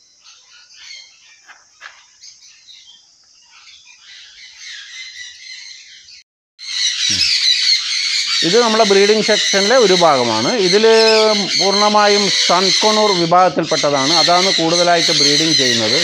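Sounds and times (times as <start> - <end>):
small parrots chirping: 0.0 - 16.0
parrots squawking loudly: 3.5 - 16.0.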